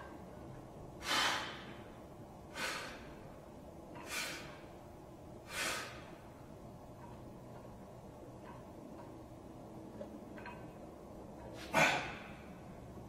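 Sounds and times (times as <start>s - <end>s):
man exhaling sharply: 1.0s - 1.7s, 2.5s - 3.1s, 4.0s - 4.6s, 5.5s - 6.0s, 11.6s - 12.5s.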